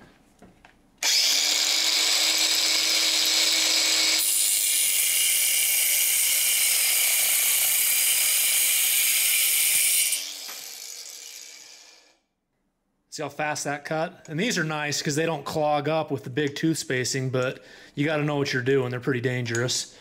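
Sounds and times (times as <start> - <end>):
angle grinder cutting metal: 1.0 - 12.2.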